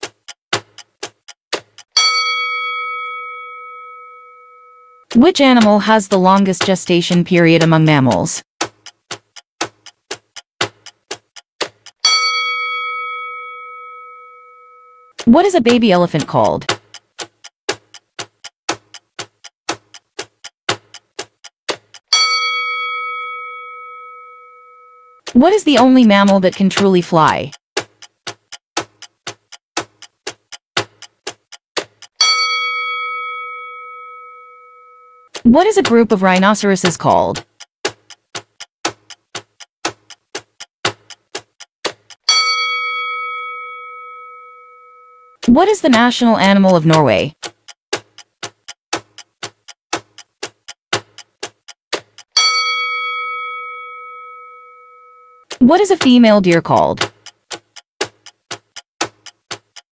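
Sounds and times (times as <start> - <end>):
timer ticking: 0.0 - 59.9
bell-like chime ringing: 2.0 - 5.0, 12.0 - 15.1, 22.1 - 25.2, 32.2 - 35.3, 42.3 - 45.4, 52.4 - 55.4.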